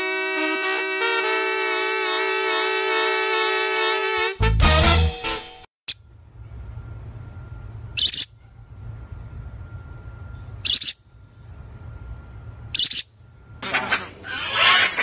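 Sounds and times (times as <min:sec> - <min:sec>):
low steady hum: 0:06.0 - 0:14.7
parrot high-pitched calls: 0:08.0 - 0:08.4, 0:10.6 - 0:11.0, 0:12.8 - 0:15.0.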